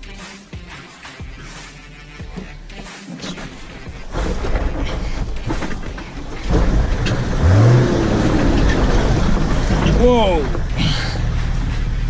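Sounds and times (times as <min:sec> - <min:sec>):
diesel engine under load: 0:03.4 - 0:12.0.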